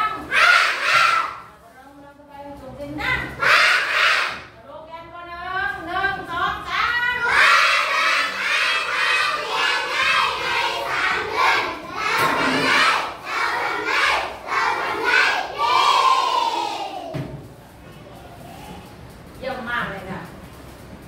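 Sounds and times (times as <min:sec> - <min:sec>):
children chanting in unison: 0:07.2 - 0:17.1.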